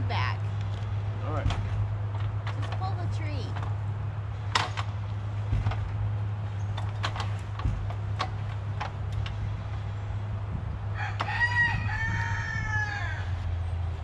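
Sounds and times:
steady low hum: 0.0s - 14.0s
rooster crowing: 10.9s - 13.5s.

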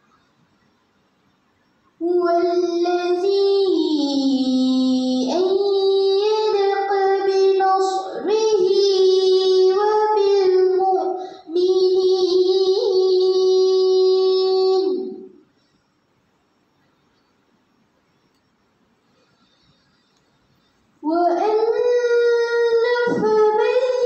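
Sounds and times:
girl chanting melodically: 2.0s - 15.5s, 21.0s - 24.0s.

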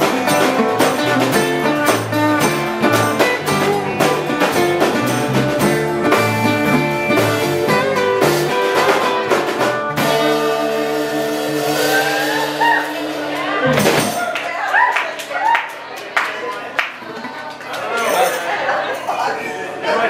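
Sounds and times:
country band playing: 0.0s - 15.1s.

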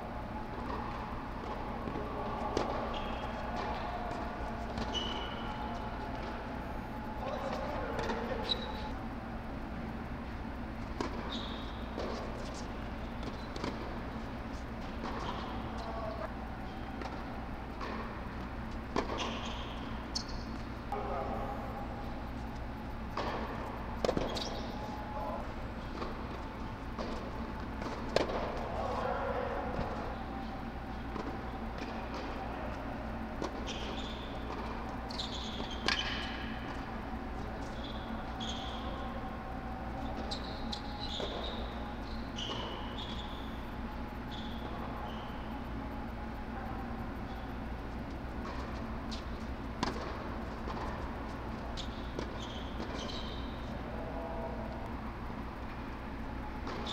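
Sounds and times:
blowers humming: 0.0s - 56.9s
tennis shoes squeaking: 0.6s - 9.0s, 11.0s - 17.2s, 18.6s - 20.8s, 22.0s - 29.2s, 29.8s - 45.9s, 46.8s - 53.8s, 56.6s - 56.9s
shoe squeaking on court: 2.9s - 3.9s, 4.6s - 5.8s, 11.2s - 13.6s, 19.1s - 20.7s, 24.0s - 25.4s, 33.6s - 34.5s, 35.1s - 36.6s, 37.7s - 39.1s, 40.1s - 45.6s, 51.8s - 53.7s
racquets striking tennis ball: 23.1s - 25.0s, 25.9s - 28.8s.

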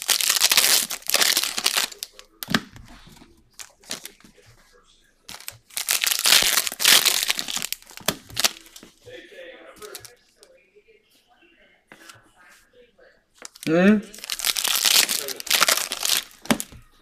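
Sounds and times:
foil wrappers crinkling and tearing: 0.0s - 4.2s, 5.3s - 8.9s, 9.8s - 10.1s, 13.4s - 16.8s.

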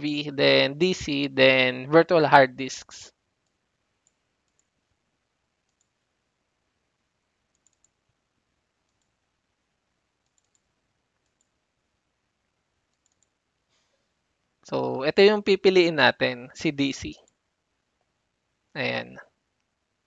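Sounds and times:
computer mouse clicks: 3.4s - 4.8s, 5.6s - 6.1s, 7.5s - 8.2s, 8.8s - 9.2s, 10.2s - 11.6s, 12.9s - 13.4s.

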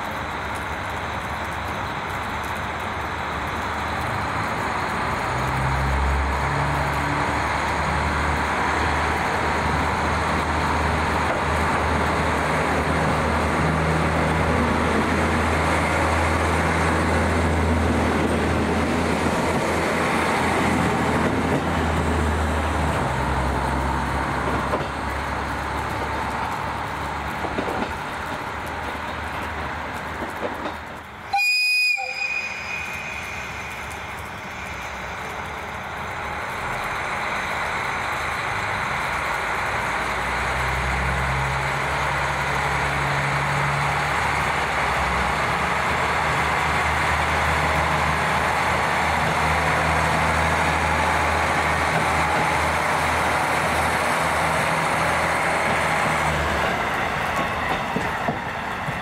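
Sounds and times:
train wheels rolling: 0.0s - 59.0s
brief high tone: 31.3s - 33.3s.

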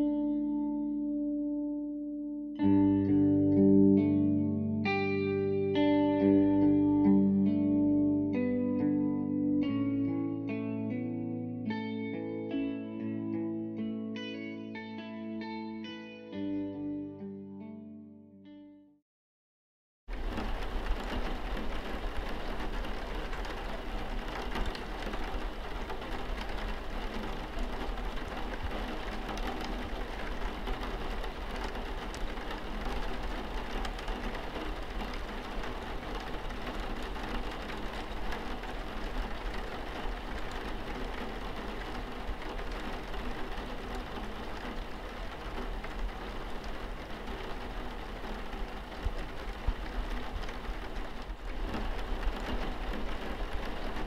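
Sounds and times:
steady rain: 20.1s - 54.0s.

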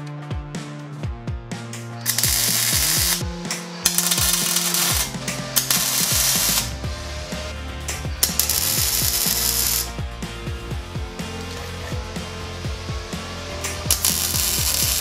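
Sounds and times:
music with deep beat: 0.0s - 15.0s
welding arc crackling: 2.0s - 6.8s, 8.2s - 9.9s, 13.6s - 15.0s.

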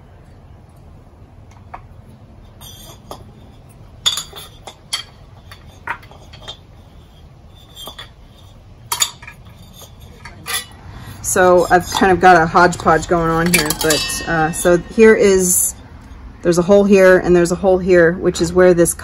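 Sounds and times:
fan housing pieces clinking: 2.4s - 16.2s.

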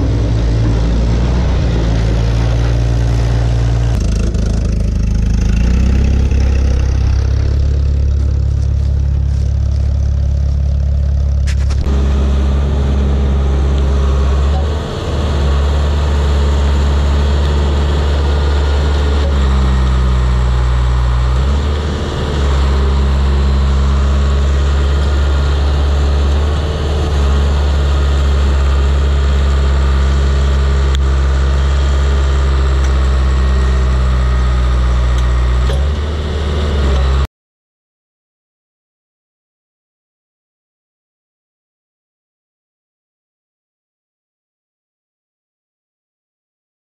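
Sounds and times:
bulldozer diesel engine running hard: 0.0s - 37.3s.

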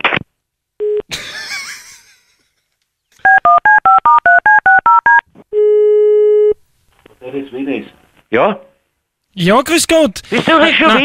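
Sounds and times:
touch-tone keypad beeps: 3.3s - 5.2s.

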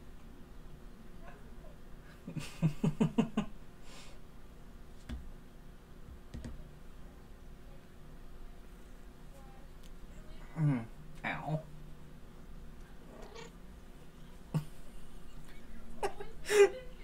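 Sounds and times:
person's stifled laugh: 14.5s - 17.0s.

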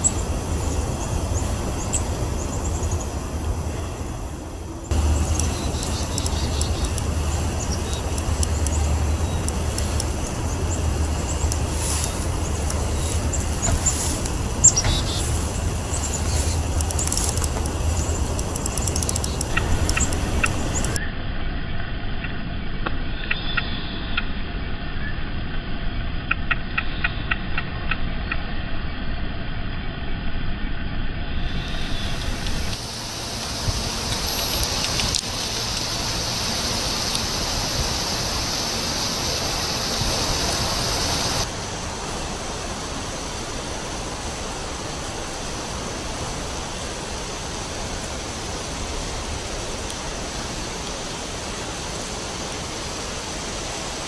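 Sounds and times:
steady low rumble: 0.0s - 54.0s
woodpecker pecking at bark: 4.9s - 21.0s.

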